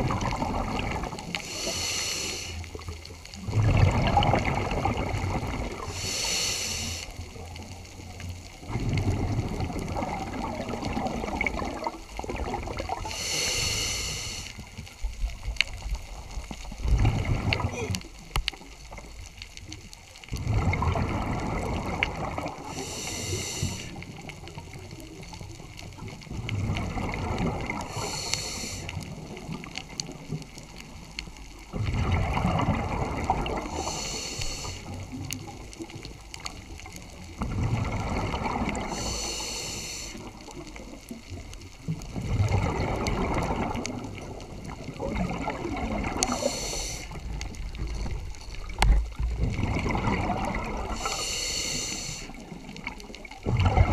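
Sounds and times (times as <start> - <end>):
exhaled bubbles gurgling underwater: 0.0 - 53.9
regulator inhale hiss: 1.3 - 2.8, 5.8 - 7.3, 13.0 - 14.7, 22.6 - 24.1, 27.8 - 29.0, 33.6 - 35.1, 38.8 - 40.4, 46.2 - 47.3, 50.9 - 52.5.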